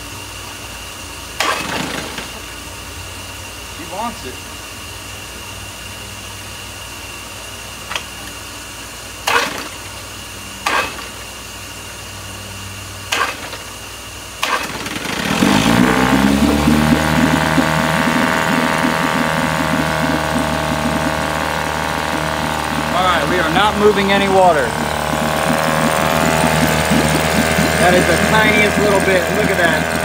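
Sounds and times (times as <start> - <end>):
outboard engine running: 14.4 - 30.0.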